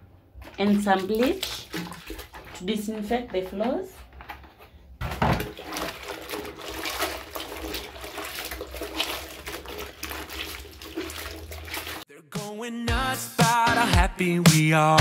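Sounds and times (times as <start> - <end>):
water sloshing and splashing: 0.0 - 12.1
cloth squeezed in soapy water: 0.3 - 3.8, 5.3 - 12.1.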